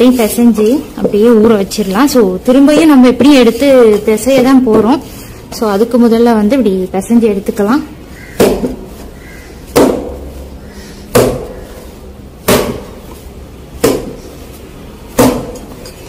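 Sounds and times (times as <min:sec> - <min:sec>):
dough thudding in metal bowl: 0:08.3 - 0:09.0, 0:09.7 - 0:10.4, 0:12.4 - 0:13.2, 0:13.8 - 0:14.3.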